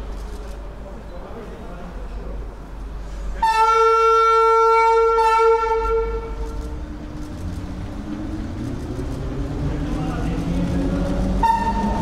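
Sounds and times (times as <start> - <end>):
train rumbling: 0.0 - 12.0
train horn blast: 3.4 - 6.5, 11.4 - 12.0.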